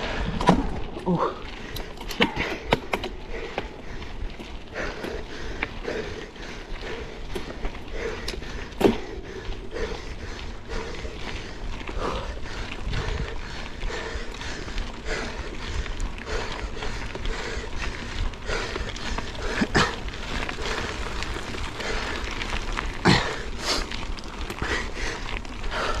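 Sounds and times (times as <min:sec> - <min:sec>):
bike rattling: 0:00.0 - 0:26.0
steady low rumble: 0:00.0 - 0:26.0
tyres crunching over stones: 0:00.0 - 0:26.0
bike knocking over bumps: 0:00.1 - 0:03.8, 0:07.3 - 0:09.4.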